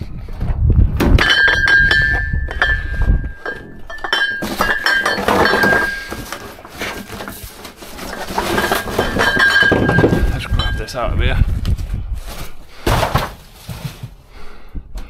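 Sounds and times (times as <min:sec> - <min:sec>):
high metallic ringing: 0:01.2 - 0:06.6, 0:08.7 - 0:11.0
metal cans clinking together: 0:01.2 - 0:07.4, 0:08.0 - 0:10.9
scraping rustle: 0:03.0 - 0:14.2.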